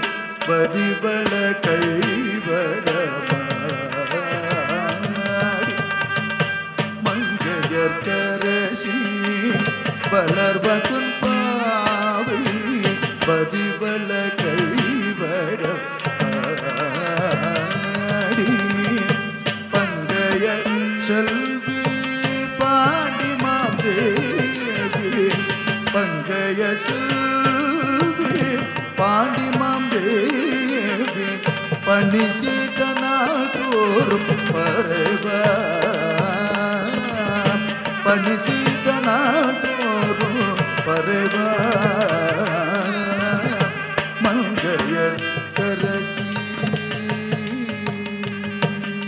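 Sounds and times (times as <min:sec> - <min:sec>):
person singing: 0:00.0 - 0:06.2, 0:06.8 - 0:49.0
ankle bells jingling: 0:15.9 - 0:49.0.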